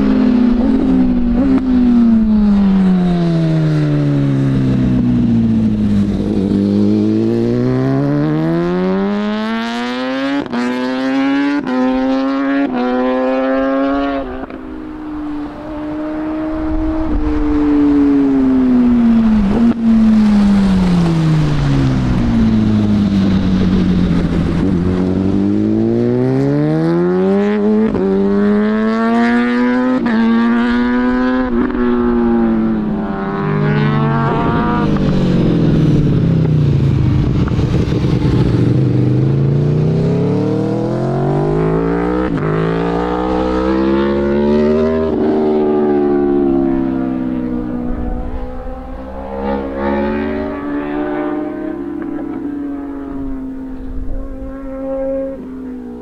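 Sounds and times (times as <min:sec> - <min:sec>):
motorcycle engines revving: 0:00.0 - 0:56.0.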